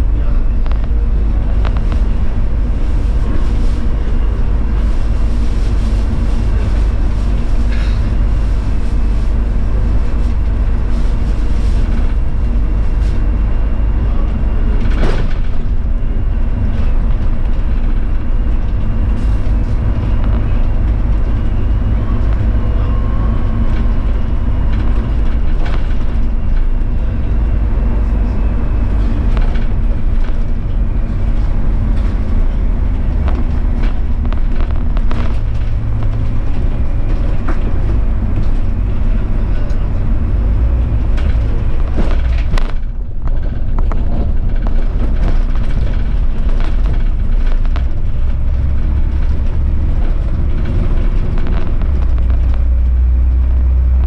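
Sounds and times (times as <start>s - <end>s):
bus engine and road rumble: 0.0s - 54.0s
rattles and clicks: 14.2s - 54.0s.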